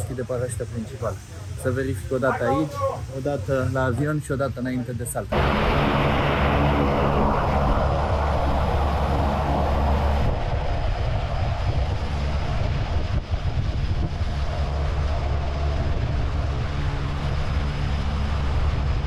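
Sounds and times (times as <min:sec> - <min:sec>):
propeller plane engine droning: 0:05.3 - 0:19.0
rushing noise: 0:05.3 - 0:19.0.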